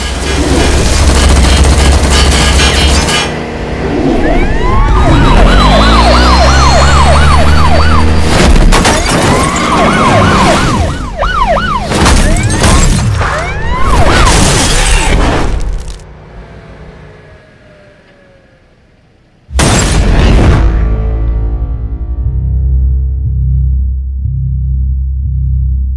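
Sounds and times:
police siren yelp: 4.0 - 8.3, 9.0 - 12.6, 13.2 - 14.4
booming effects and hits: 19.5 - 23.4
loud low rumble: 20.0 - 25.9.

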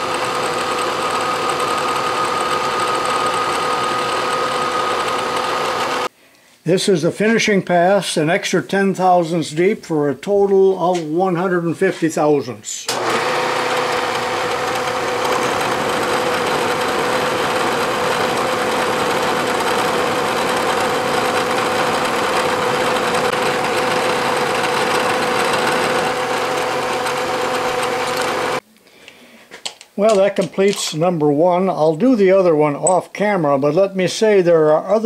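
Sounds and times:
metal cutting noise: 0.0 - 6.1, 12.9 - 28.6
milling machine whine: 0.0 - 6.1, 12.9 - 28.6.

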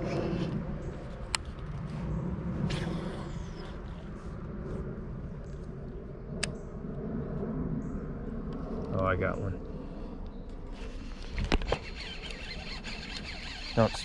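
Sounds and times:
sharp clicks: 11.4 - 14.0.

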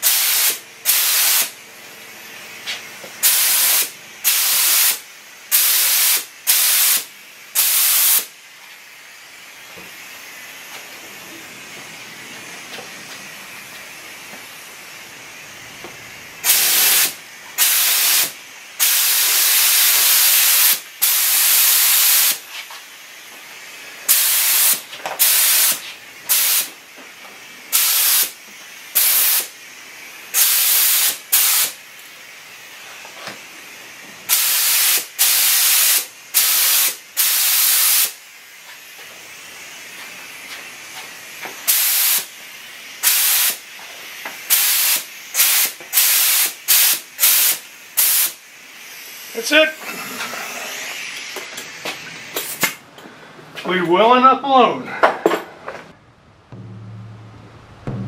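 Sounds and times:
paint spray gun hissing bursts: 0.0 - 1.6, 2.2 - 52.8
faint hiss: 2.3 - 52.8.

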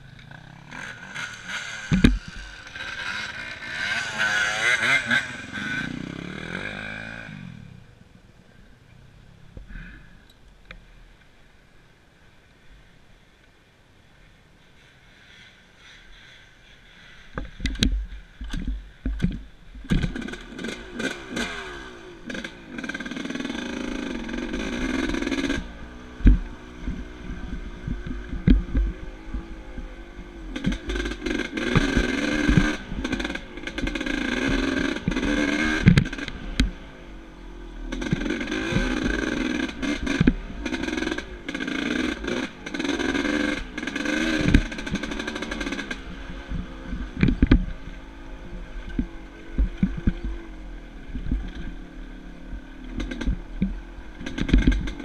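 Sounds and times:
dirt bike engine revving: 0.0 - 7.8, 19.9 - 55.0
sharp knocks of bike on bumps: 0.3 - 5.7, 17.3 - 21.5, 26.2 - 27.1, 27.9 - 29.5, 30.6 - 36.8, 37.9 - 47.8, 52.9 - 55.0.

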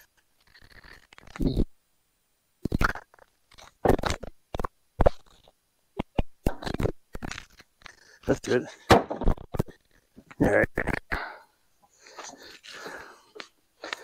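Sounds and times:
wooden boards dropped: 8.7 - 9.8.

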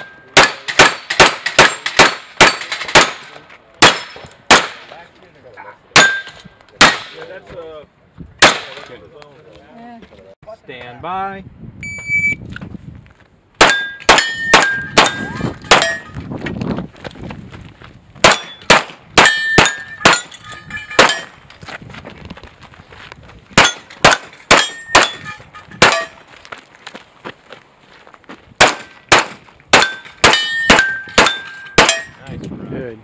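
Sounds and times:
pistol shots: 0.4 - 4.9, 6.0 - 7.2, 8.4 - 8.8, 13.6 - 16.0, 18.2 - 20.3, 21.0 - 21.3, 23.6 - 25.2, 25.8 - 26.1, 28.6 - 32.1
steel plates clanging: 18.4 - 21.4, 29.8 - 32.2.

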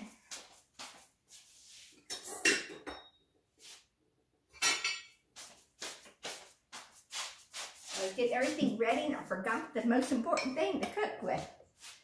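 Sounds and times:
dishes and utensils clattering: 2.0 - 3.2, 4.5 - 5.2.

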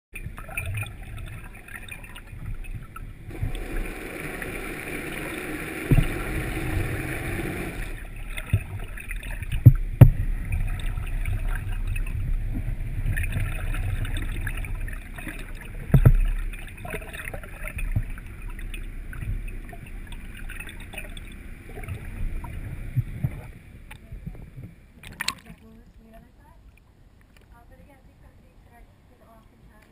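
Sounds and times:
muffled underwater water noise: 0.1 - 29.9
sharp knocks: 5.9 - 6.4.

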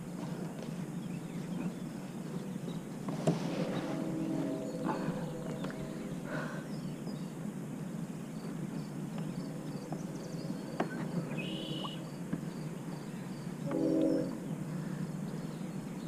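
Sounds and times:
faint bird chirps: 8.2 - 16.0
bird call: 8.7 - 15.6.

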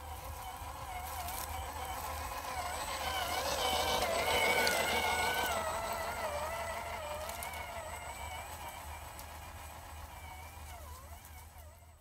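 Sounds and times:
toy car electric motor whining: 0.0 - 12.0.

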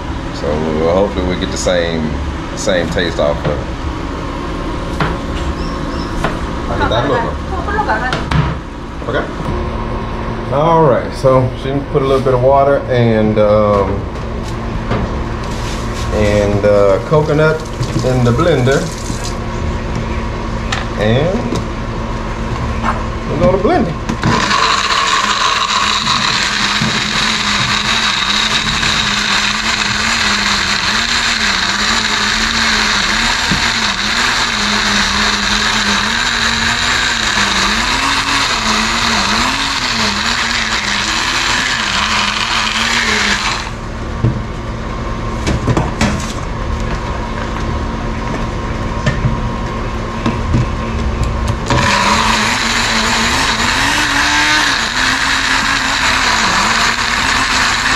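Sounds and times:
blender motor grinding: 16.2 - 19.4, 23.6 - 43.9, 51.6 - 57.9.

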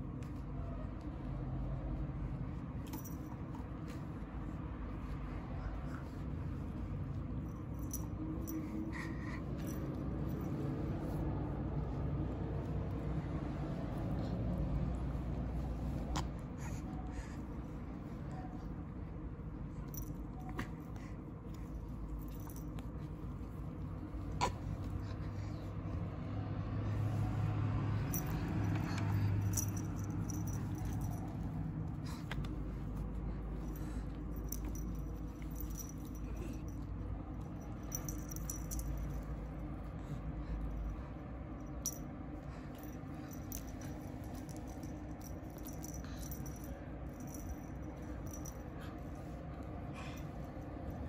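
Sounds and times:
toy rattling and clicking: 28.0 - 39.5, 42.7 - 49.4.

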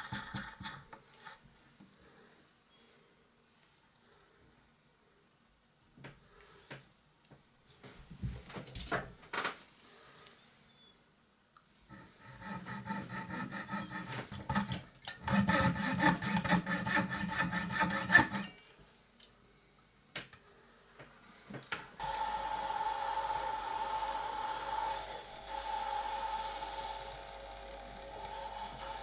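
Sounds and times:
saw rasping through brass pin: 11.9 - 18.6
steady motor hum: 22.0 - 29.0.

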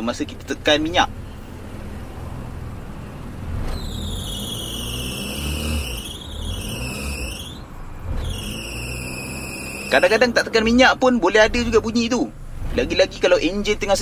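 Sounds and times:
car engine running: 0.0 - 14.0
drive belt squealing: 3.5 - 14.0.

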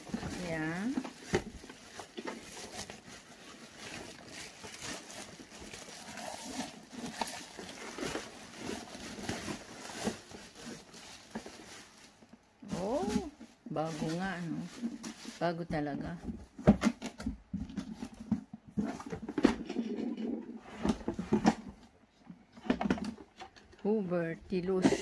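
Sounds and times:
plastic bags rustling: 0.0 - 15.7.

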